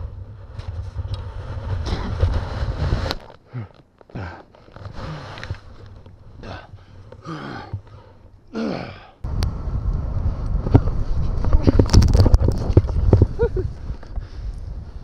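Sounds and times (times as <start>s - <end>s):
wind on microphone: 0.0s - 3.3s, 9.2s - 15.0s
snow rustling against camera: 0.0s - 7.2s, 9.6s - 15.0s
person grunting and groaning: 3.5s - 4.5s, 6.4s - 7.8s, 8.5s - 9.2s.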